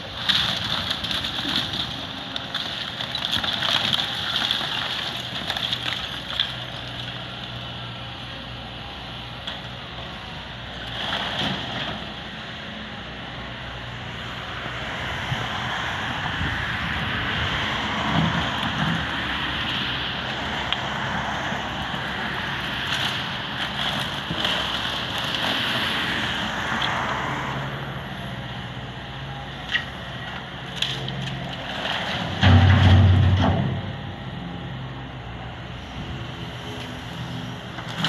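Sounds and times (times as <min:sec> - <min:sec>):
debris crunching and crackling: 0:00.0 - 0:07.5, 0:21.8 - 0:26.4, 0:29.6 - 0:34.0
excavator diesel engine: 0:00.0 - 0:38.0.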